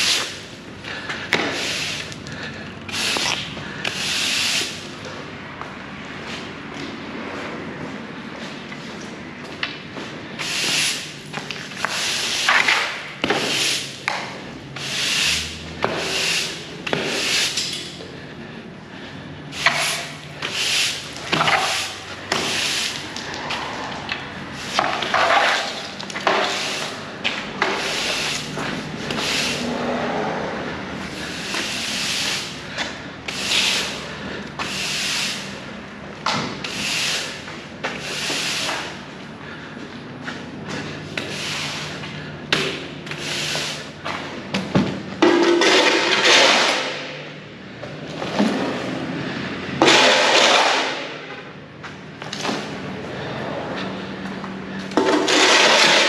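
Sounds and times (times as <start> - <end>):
push broom sweeping on concrete: 0.0 - 5.2, 10.0 - 18.3, 19.5 - 44.4, 48.2 - 51.2, 54.7 - 56.0.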